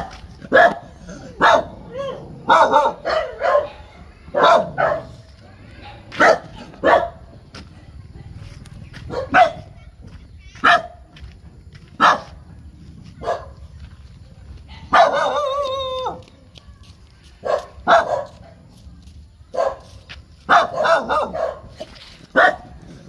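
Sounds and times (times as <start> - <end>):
small dog barking: 0.0 - 7.2, 9.1 - 9.7, 10.6 - 11.0, 12.0 - 12.4, 13.2 - 13.6, 14.7 - 16.2, 17.4 - 18.6, 19.5 - 19.9, 20.5 - 22.8.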